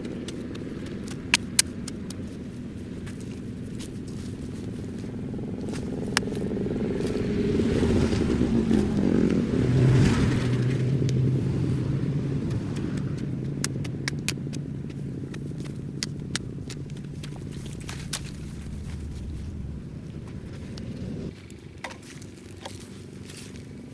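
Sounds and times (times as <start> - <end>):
motor engine humming past: 0.0 - 23.9
sharp clicks: 12.5 - 21.0.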